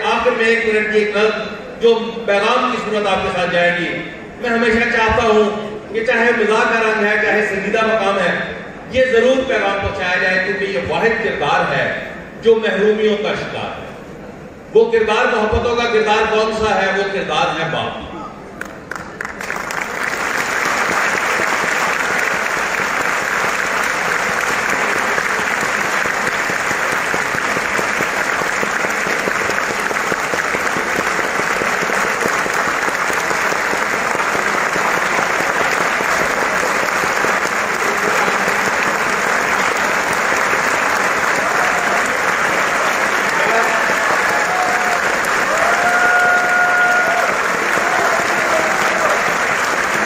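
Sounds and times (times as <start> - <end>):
large audience applauding: 18.6 - 50.0.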